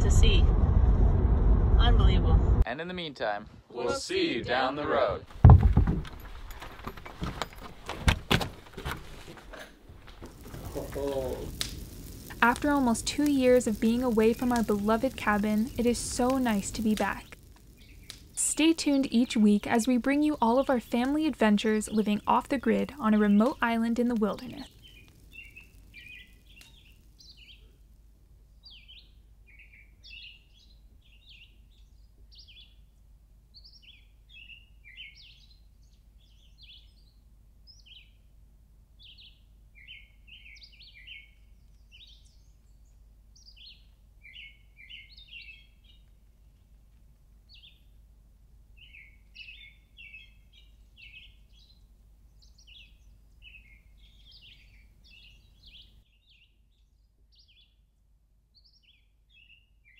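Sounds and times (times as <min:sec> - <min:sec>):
songbirds chirping and singing: 0:33.6 - 0:38.2, 0:39.0 - 0:46.1, 0:48.8 - 0:57.8.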